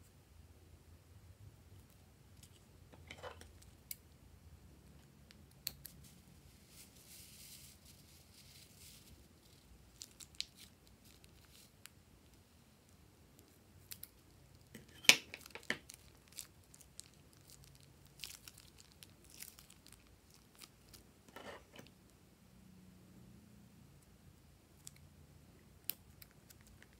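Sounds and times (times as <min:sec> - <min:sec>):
plastic bag crinkling: 0:06.5 - 0:11.8, 0:15.3 - 0:21.0.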